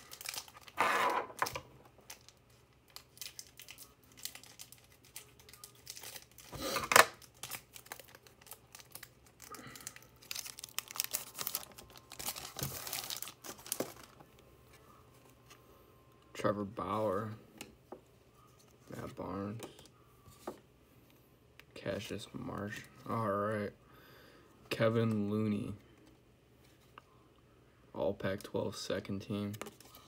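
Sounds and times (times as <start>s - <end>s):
wrapper tearing and crinkling: 0.0s - 14.2s.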